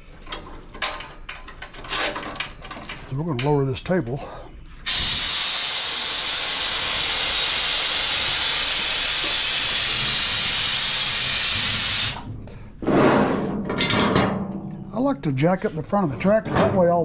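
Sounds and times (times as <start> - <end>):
compressed air hissing: 4.9 - 12.3.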